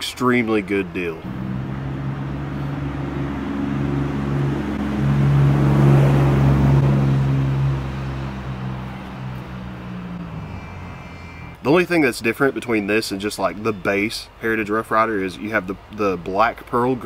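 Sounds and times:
passing engine hum: 0.0 - 13.0.

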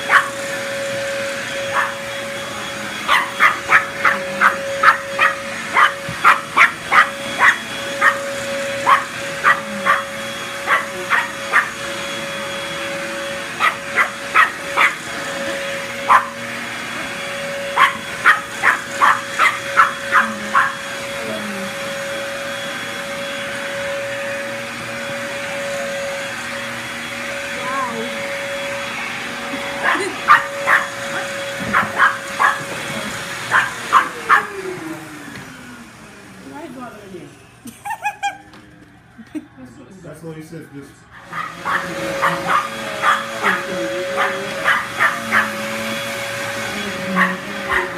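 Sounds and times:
vacuum cleaner motor humming: 0.0 - 47.9
small dog barking: 0.1 - 0.4, 1.7 - 2.0, 3.1 - 11.7, 13.6 - 15.0, 16.1 - 16.4, 17.7 - 20.8, 29.8 - 32.7, 33.5 - 34.6, 41.2 - 45.6, 47.1 - 47.9.

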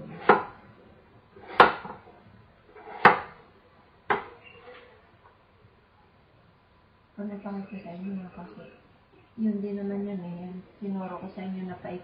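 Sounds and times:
knife slicing apple: 0.0 - 0.6, 1.4 - 2.0, 2.7 - 3.4
knife knocking on cutting board: 4.1 - 4.3.

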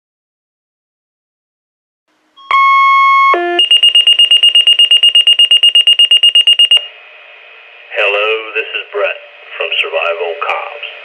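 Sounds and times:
radio alert beeps: 2.4 - 6.9.

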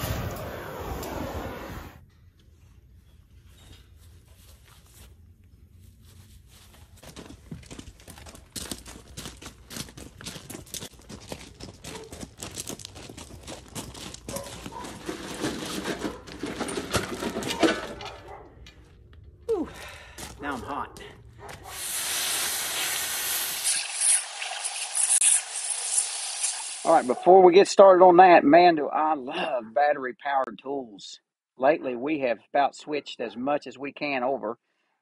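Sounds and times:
footsteps crunching on gravel: 5.9 - 16.3, 19.8 - 21.7.

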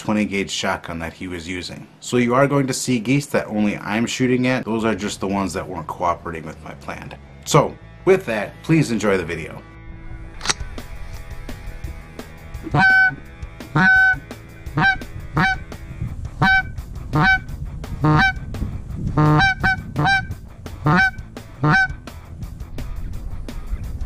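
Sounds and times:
goose honking: 12.7 - 15.6, 16.4 - 18.4, 19.2 - 22.0.

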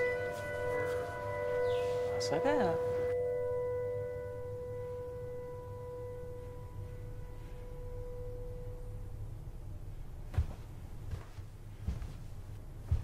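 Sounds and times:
ringing bell-like tone: 0.0 - 10.2
low rumbling drone: 0.0 - 11.8.

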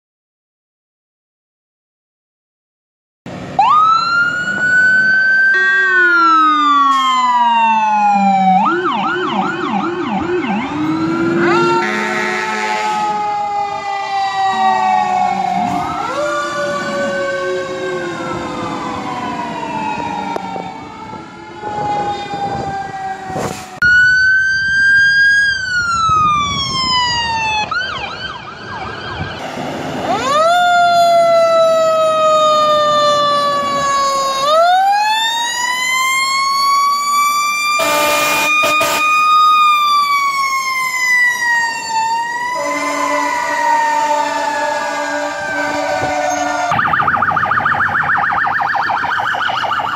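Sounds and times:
electronic siren wailing: 3.6 - 29.4, 30.1 - 49.9
air horn blasts: 11.4 - 13.2, 37.8 - 39.2, 42.5 - 46.8.

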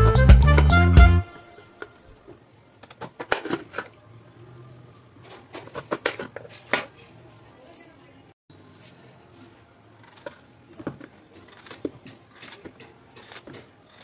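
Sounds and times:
knife cutting vegetable on plate: 10.0 - 14.0.

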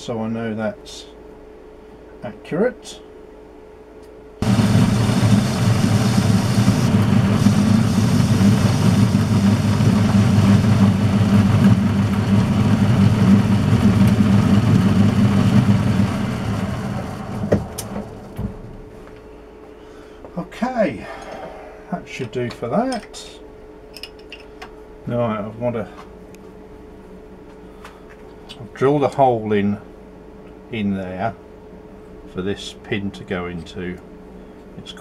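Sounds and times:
metal lathe running: 4.4 - 18.4.

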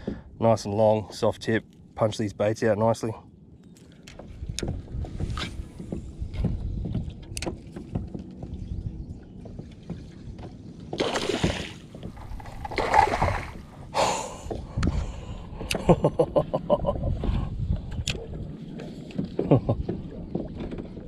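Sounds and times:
knocks and clicks of gear: 3.8 - 11.0.

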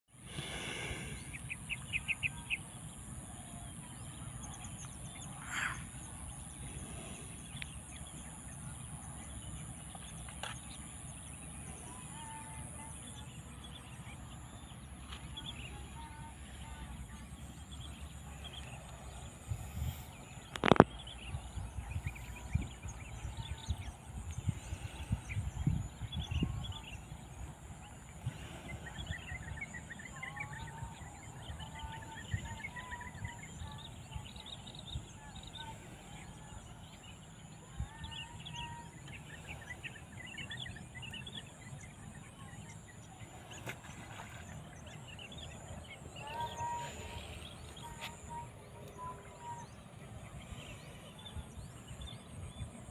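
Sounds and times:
bird calls: 28.4 - 52.9.

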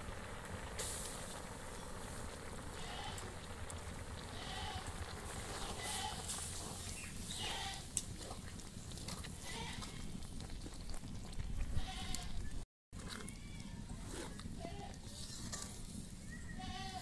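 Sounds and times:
livestock bleating: 4.4 - 4.9, 16.6 - 17.0.

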